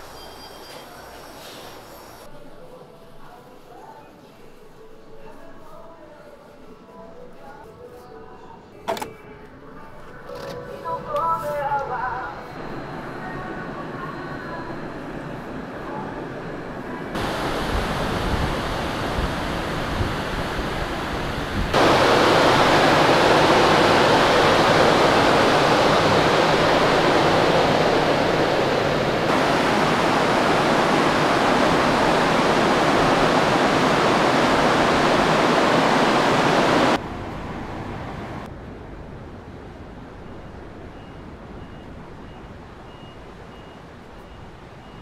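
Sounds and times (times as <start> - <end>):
loud rushing noise: 17.2 - 38.5.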